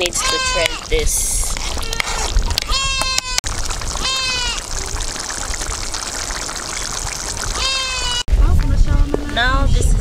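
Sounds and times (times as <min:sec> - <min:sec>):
goat bleating: 0:00.0 - 0:00.9, 0:01.8 - 0:03.4, 0:04.0 - 0:04.6, 0:07.6 - 0:08.2.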